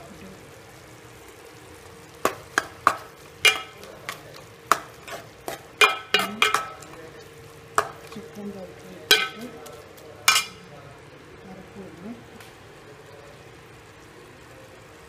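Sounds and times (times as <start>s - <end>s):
faint frying sizzle: 0.0s - 15.0s
spoon clinking against metal pot: 2.3s - 7.0s, 9.1s - 10.6s.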